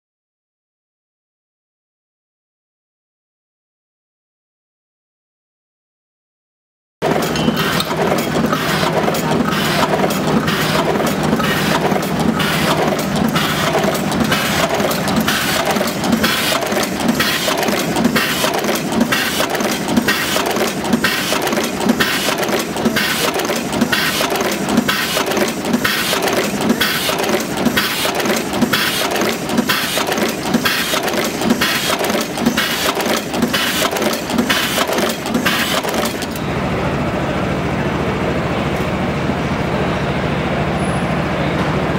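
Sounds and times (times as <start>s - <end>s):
crimp machine clacking: 7.0s - 36.4s
steady mechanical clatter: 7.0s - 41.9s.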